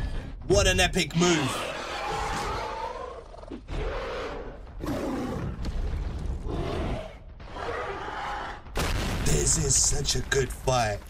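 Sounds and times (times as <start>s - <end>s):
creature roars with wavering pitch: 1.7s - 5.6s.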